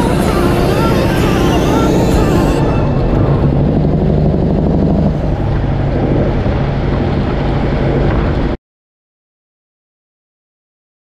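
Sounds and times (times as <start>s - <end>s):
truck diesel engine droning: 0.0s - 8.6s.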